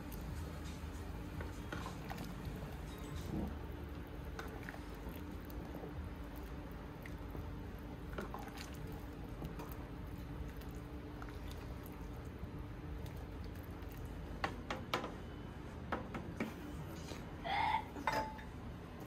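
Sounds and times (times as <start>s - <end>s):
spoon stirring soup: 0.0s - 15.1s
steady low hum: 0.0s - 19.0s.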